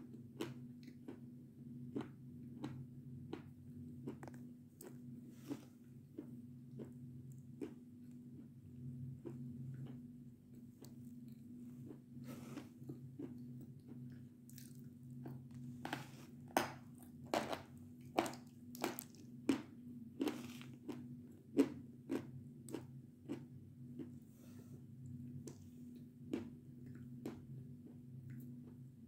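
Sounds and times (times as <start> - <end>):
low steady hum: 0.0 - 29.0
chalk crunching in chewing: 4.1 - 7.8.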